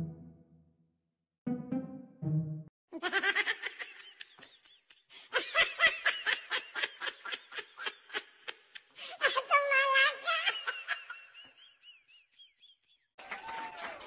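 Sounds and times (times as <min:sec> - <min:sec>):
person giggling: 0:03.0 - 0:09.5.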